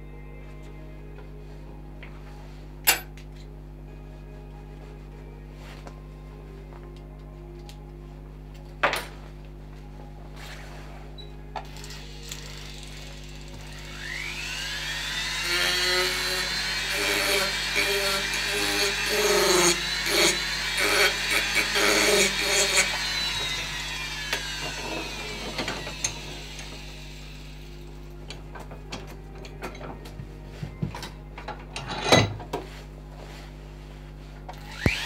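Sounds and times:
rotary tool whining: 11.2 - 28.0, 34.5 - 35.0
tool grinding into wood: 11.8 - 27.2.

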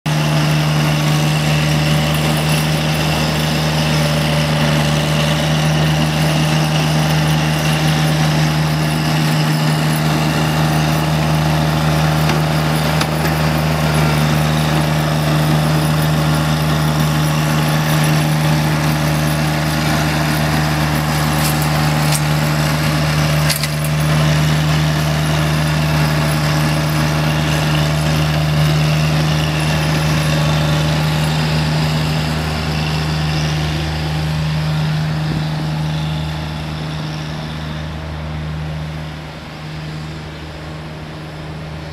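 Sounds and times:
low engine drone: 0.1 - 41.9.

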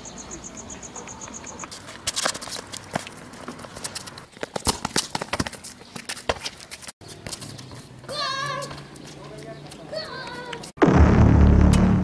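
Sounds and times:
running footsteps: 1.2 - 10.7.

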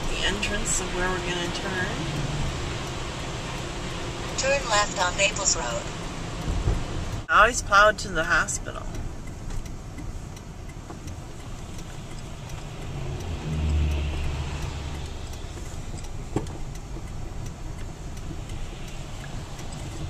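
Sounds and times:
car engine running: 0.0 - 20.0
tyres on wet slushy road: 0.0 - 20.0.

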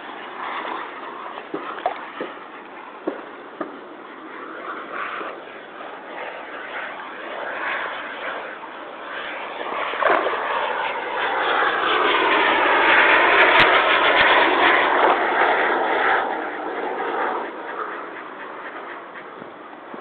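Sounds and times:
model airplane motor whining: 4.3 - 20.0.

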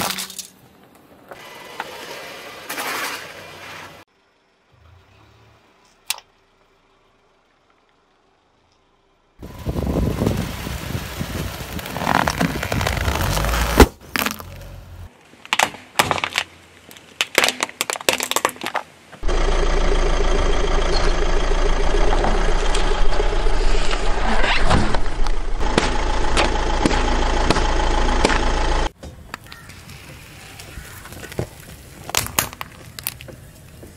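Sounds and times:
tyre crushing objects: 11.7 - 14.7
car engine running: 19.2 - 24.3, 24.9 - 28.9.

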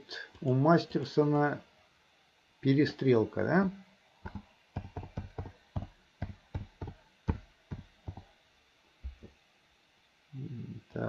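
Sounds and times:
keyboard typing: 4.2 - 8.2.

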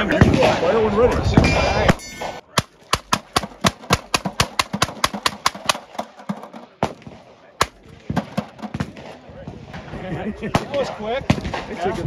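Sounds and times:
gatling gun firing: 2.6 - 9.2.

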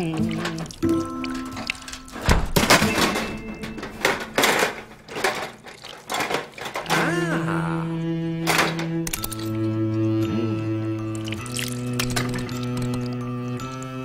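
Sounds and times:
metal hand tools clattering: 0.0 - 7.2
metal toolbox thudding down: 2.2 - 7.0
held music chord: 7.2 - 14.0.

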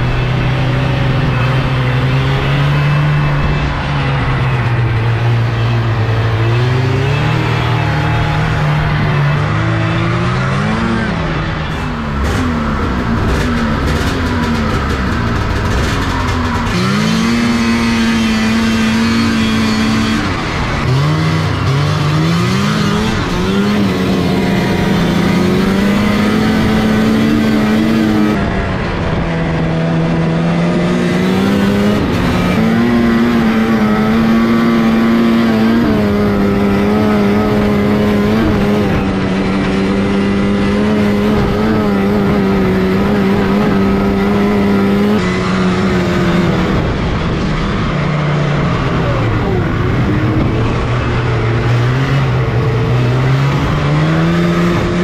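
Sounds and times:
snowmobile engine revving: 0.0 - 55.0.

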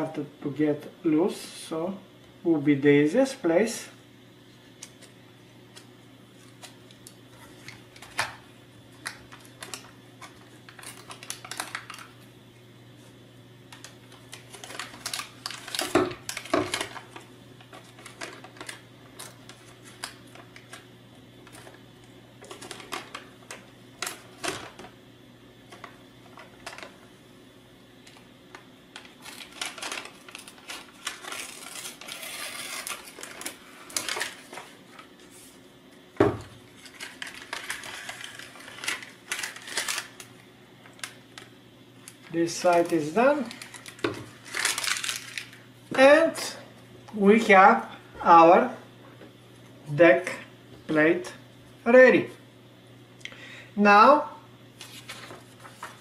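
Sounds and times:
faint steady hum: 0.0 - 56.0
paper crinkling and tearing: 9.0 - 12.1, 13.7 - 20.8, 22.4 - 24.9, 28.9 - 35.6, 36.8 - 40.3, 42.1 - 45.6, 54.8 - 56.0.

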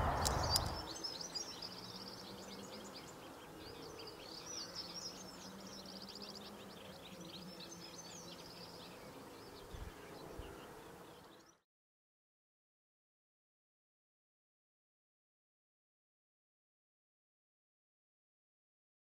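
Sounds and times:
low bumps: 0.0 - 0.8
small birds twittering: 0.0 - 11.6.

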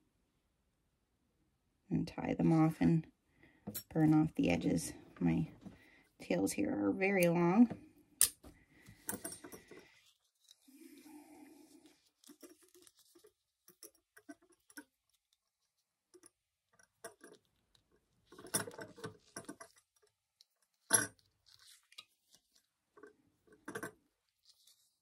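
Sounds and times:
thread handling rustles: 8.4 - 11.1, 11.8 - 15.9, 24.2 - 25.0.

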